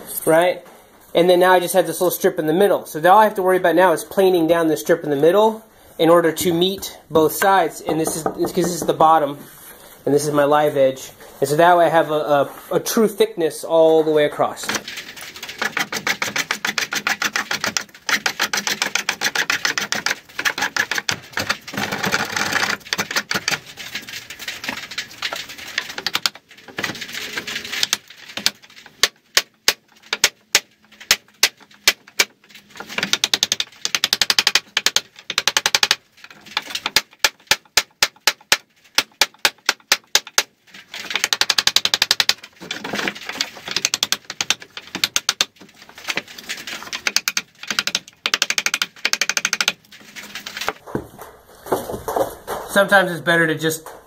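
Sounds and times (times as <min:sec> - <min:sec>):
hand plane rasping over wood: 0:15.5 - 0:23.2.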